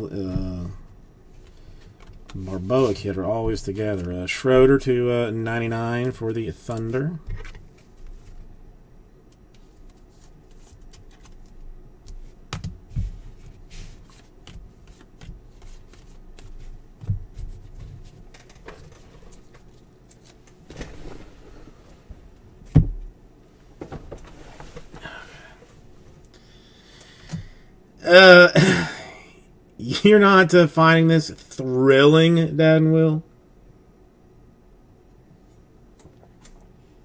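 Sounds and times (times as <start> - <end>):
cards and sleeves rustling: 1.4 - 4.2, 9.3 - 21.6.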